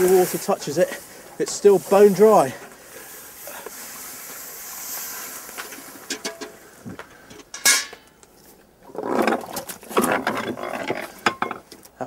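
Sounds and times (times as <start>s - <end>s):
steam hissing off hot iron: 3.2s - 6.1s.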